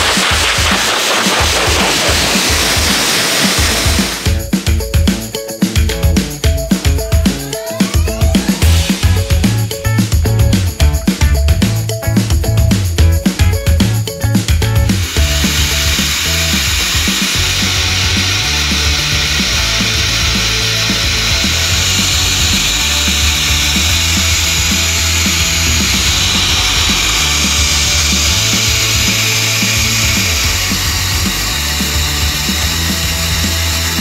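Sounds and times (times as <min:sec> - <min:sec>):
blow dryer blowing air: 0:00.0 - 0:04.5, 0:08.4 - 0:09.6, 0:14.8 - 0:34.0
background music with steady beat: 0:00.0 - 0:34.0.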